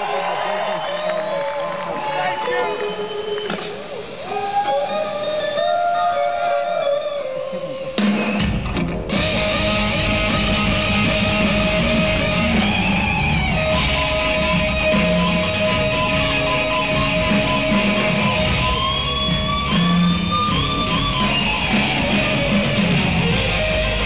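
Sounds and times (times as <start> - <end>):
electric guitar blues solo: 3.4 - 24.0
drums and bass: 7.6 - 24.0.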